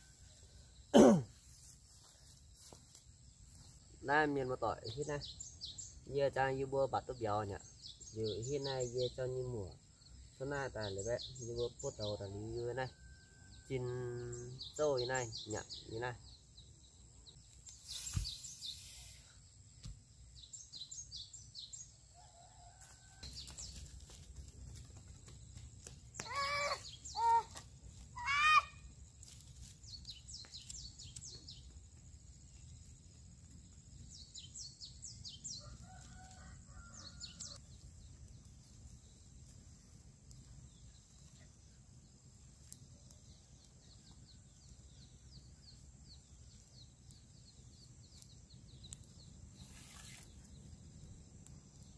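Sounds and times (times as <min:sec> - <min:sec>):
low outdoor background: 0:00.0 - 0:51.9
small birds chirping: 0:00.6 - 0:51.9
rooster crowing: 0:22.1 - 0:23.4, 0:35.6 - 0:37.6.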